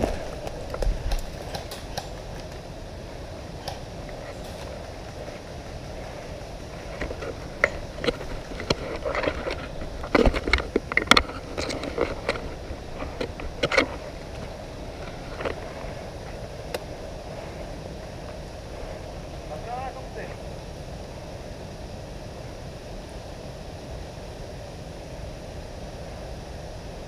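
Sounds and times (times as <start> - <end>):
rustling of leaves and twigs: 0.0 - 21.8
outdoor background noise: 0.0 - 27.0
clicks and knocks of handled gear: 6.9 - 15.6.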